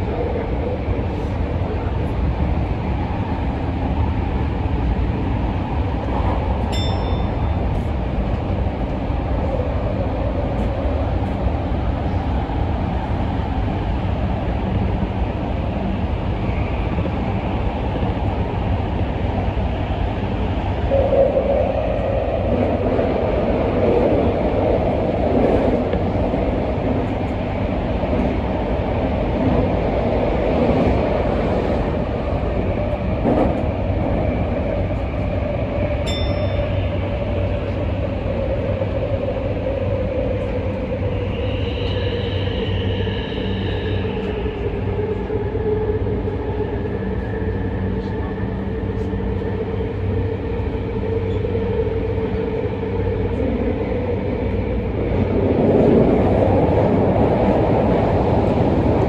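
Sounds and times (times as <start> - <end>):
train rumbling in tunnel: 0.0 - 59.0.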